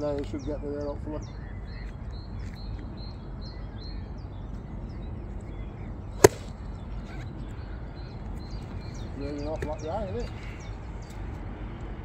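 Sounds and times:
faint birdsong: 0.0s - 12.0s
golf club striking ball: 6.2s - 6.6s.

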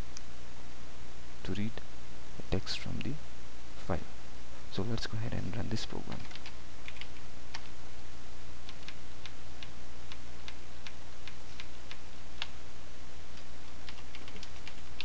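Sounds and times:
steady low hum: 0.0s - 15.0s
computer keyboard keys clicking: 6.1s - 7.7s, 8.7s - 12.5s, 13.4s - 15.0s.

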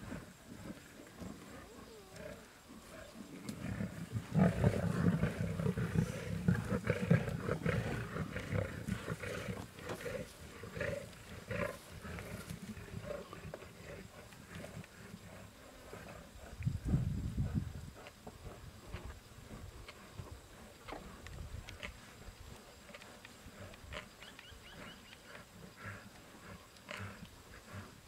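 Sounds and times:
lions growling: 0.0s - 16.9s.

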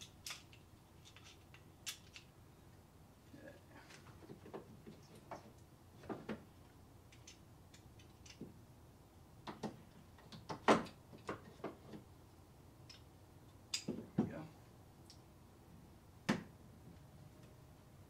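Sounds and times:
metal tools clicking and knocking: 0.0s - 2.3s.

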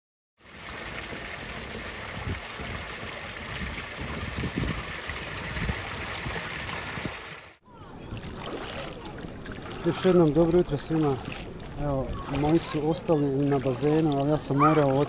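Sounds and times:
small waves lapping at shore: 7.1s - 15.0s.

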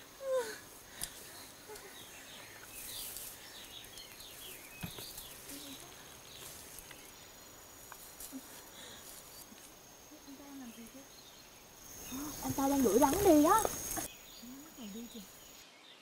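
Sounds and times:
high insect buzz: 0.0s - 15.6s
bird chirps: 1.2s - 7.6s.

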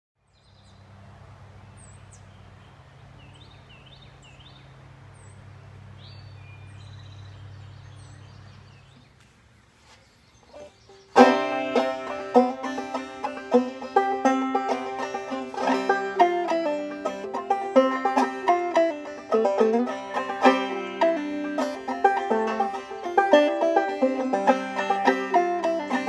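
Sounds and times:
birds chirping: 0.2s - 26.0s
low outdoor background: 0.2s - 26.0s
banjo playing: 11.1s - 26.0s.

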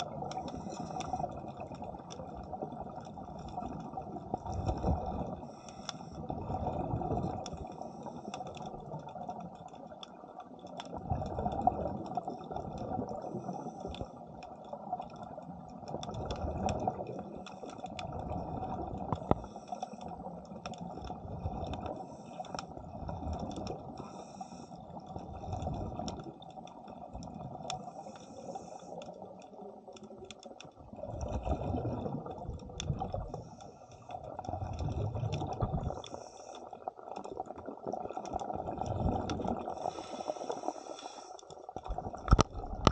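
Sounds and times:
exhaled bubbles bubbling: 0.0s - 28.1s, 29.4s - 42.9s
faint crackle of small clicks: 0.0s - 42.9s
diver breathing through regulator: 24.0s - 24.8s, 27.9s - 29.0s, 39.6s - 41.5s.

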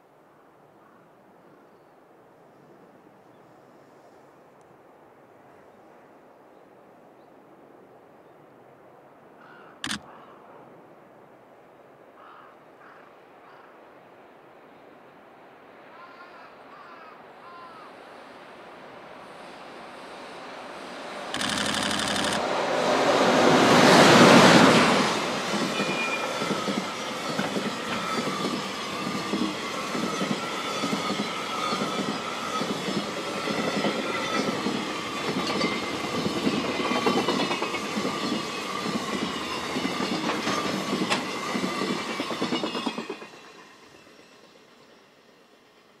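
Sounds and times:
electric locomotive passing: 16.0s - 46.0s
thin wheel squeal: 25.8s - 26.6s.

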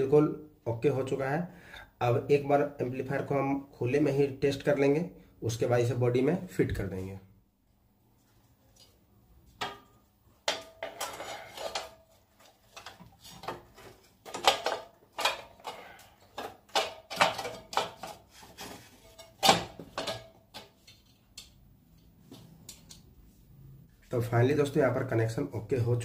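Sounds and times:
metallic clanks and rattles: 9.6s - 22.0s.

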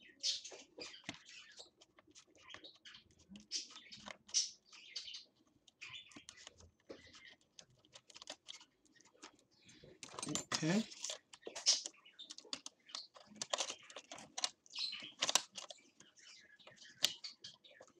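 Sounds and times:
hand tool clicking on plastic: 10.0s - 17.5s.

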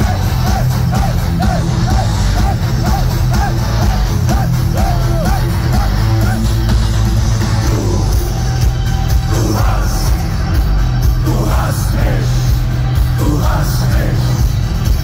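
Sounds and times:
metal band playing live: 0.0s - 15.0s.

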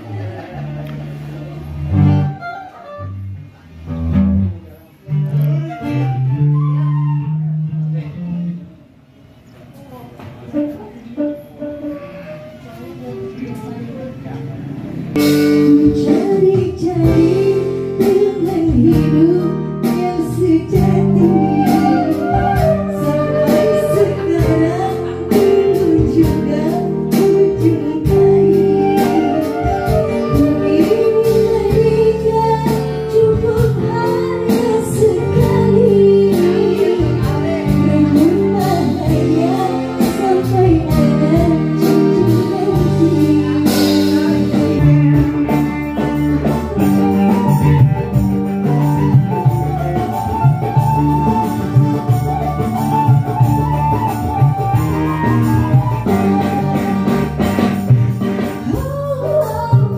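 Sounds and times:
live band playing: 0.0s - 9.4s, 10.2s - 59.9s
woman singing through microphone: 15.2s - 59.9s.

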